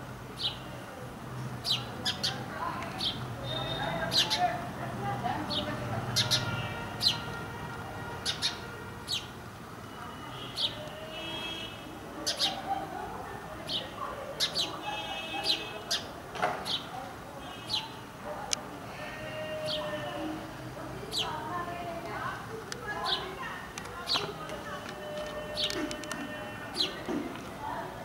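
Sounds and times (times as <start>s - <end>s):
sparrow chirping: 0.4s - 0.6s, 1.6s - 4.6s, 5.5s - 7.3s, 8.2s - 9.4s, 10.4s - 10.8s, 12.2s - 12.6s, 13.6s - 16.9s, 17.5s - 18.0s, 21.1s - 21.5s, 23.0s - 23.4s, 24.0s - 24.4s.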